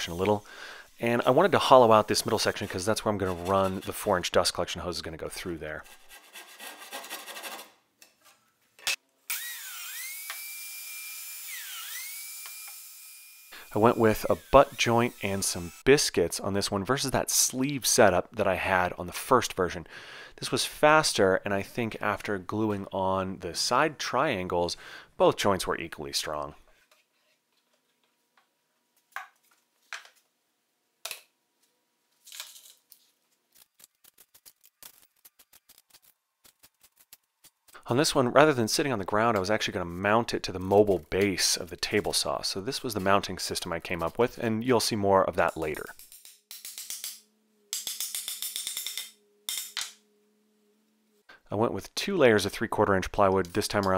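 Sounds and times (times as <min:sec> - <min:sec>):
handsaw cutting plywood: 0:05.8 - 0:07.7.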